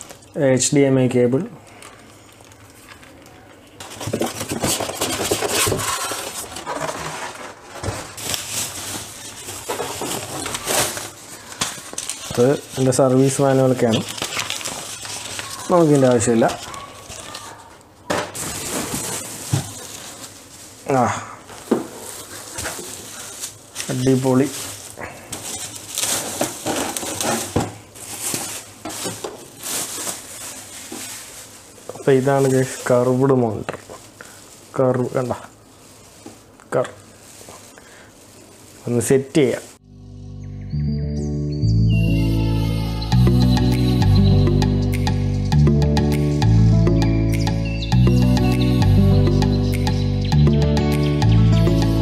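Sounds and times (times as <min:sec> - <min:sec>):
plastic wrapping crinkling: 0:01.6 - 0:39.8
plastic bag rustling: 0:01.7 - 0:39.8
foam scraping against cardboard: 0:04.0 - 0:08.2.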